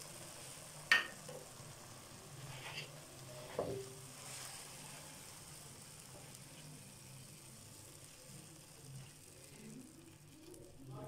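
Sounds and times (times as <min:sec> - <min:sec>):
faint food sizzling: 0:00.0 - 0:11.0
food scraping in wok: 0:02.4 - 0:03.6.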